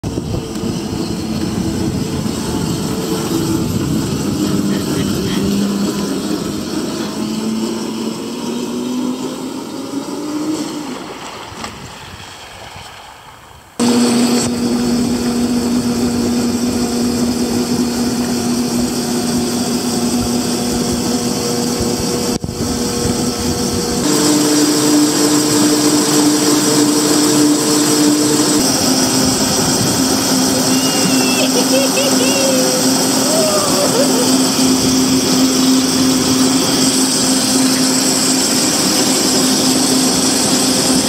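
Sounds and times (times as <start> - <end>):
water and wind noise: 0.0 - 41.0
electric motor humming: 13.8 - 41.0.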